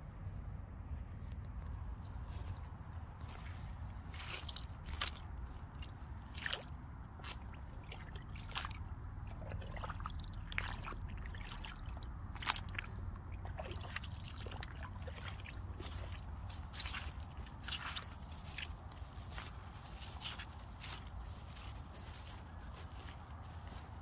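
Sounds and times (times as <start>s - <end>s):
rubber boots squelching through water: 2.0s - 24.0s.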